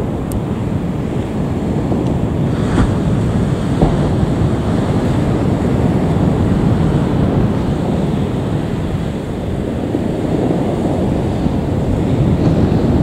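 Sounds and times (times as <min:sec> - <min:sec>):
distant jet engine rumble: 0:00.0 - 0:13.0
wind on microphone: 0:00.0 - 0:13.0.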